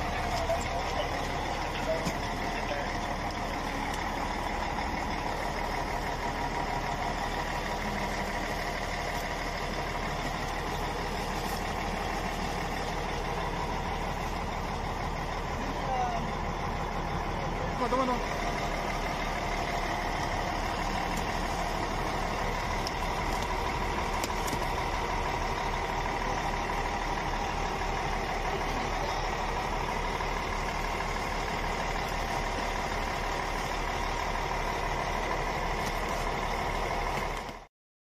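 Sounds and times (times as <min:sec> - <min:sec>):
large vehicle engine idling: 0:00.0 - 0:37.7.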